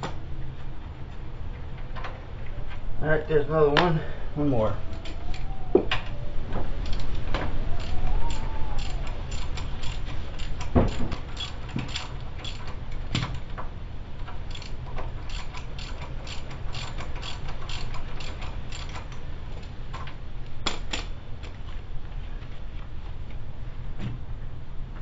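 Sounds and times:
socket ratchet clicking: 7.8s - 13.5s, 14.2s - 21.1s.

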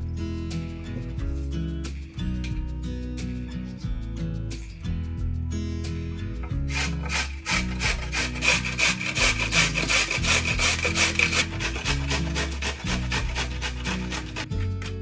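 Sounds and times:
food rubbed across a grater: 6.6s - 14.6s.

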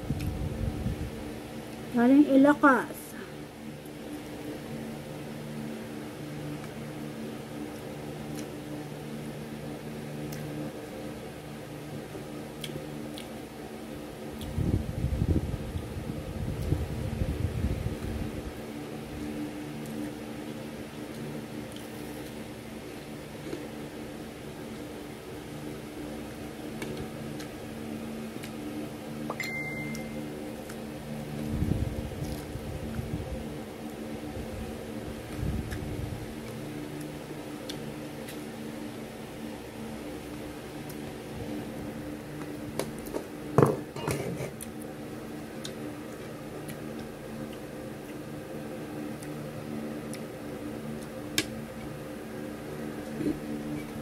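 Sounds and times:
low machine hum: 0.0s - 54.0s
chewing: 12.6s - 13.4s, 21.0s - 22.4s.

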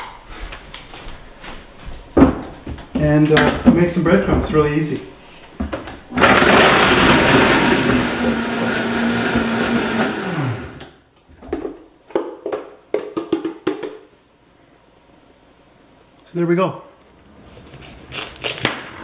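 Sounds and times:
blender whirring: 6.1s - 11.0s.

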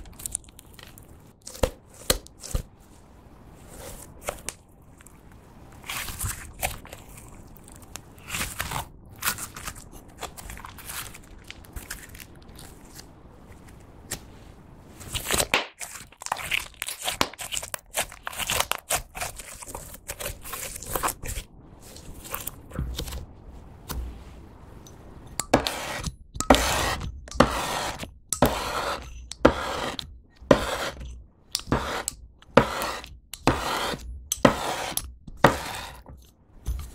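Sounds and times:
sticky crackling and popping: 0.0s - 1.6s, 5.8s - 13.2s, 15.2s - 23.3s
knife scoring slime: 15.2s - 21.4s, 25.4s - 36.9s.

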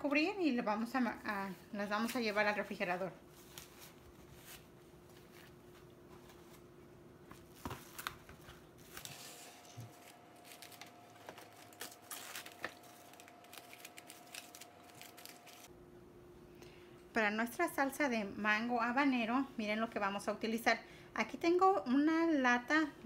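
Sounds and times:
cling wrap crinkling: 7.4s - 15.7s.

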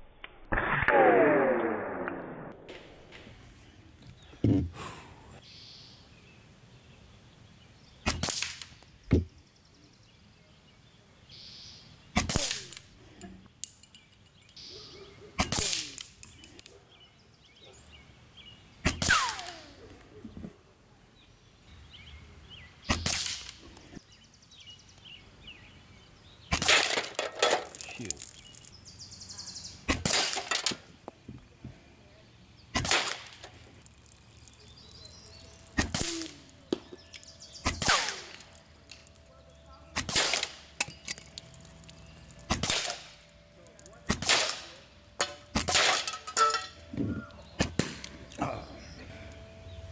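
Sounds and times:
air rifle shots: 8.1s - 8.7s, 12.2s - 12.8s, 15.4s - 16.1s, 18.8s - 19.8s, 22.9s - 23.6s, 29.9s - 30.6s, 32.7s - 33.5s, 35.8s - 36.5s, 37.6s - 38.5s, 40.0s - 40.9s, 42.5s - 43.2s, 44.1s - 46.1s, 47.6s - 48.2s
pellets pinging on metal targets: 39.9s - 46.9s.

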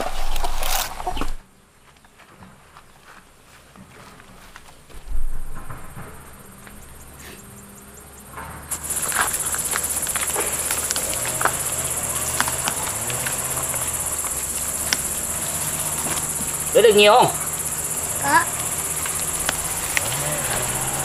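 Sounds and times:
insects chirring: 4.5s - 21.0s.

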